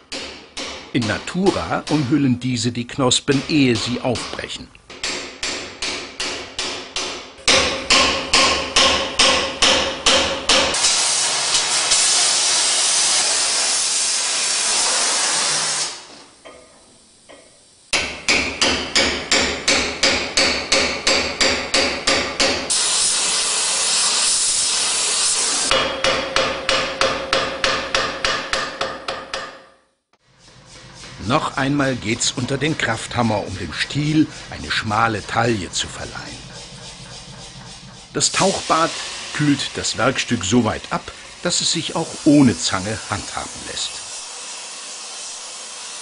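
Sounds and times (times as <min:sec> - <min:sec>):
hammer striking chisel on anvil: 0:00.0 - 0:02.3, 0:03.3 - 0:10.8, 0:16.4 - 0:22.7, 0:25.7 - 0:29.8
steady hiss: 0:10.5 - 0:19.1, 0:22.7 - 0:25.8, 0:30.2 - 0:46.0.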